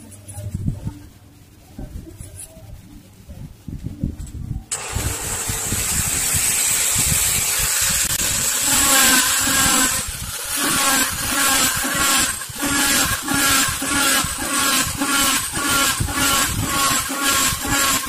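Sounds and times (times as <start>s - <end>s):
mini drill whining: 4.7s - 18.0s.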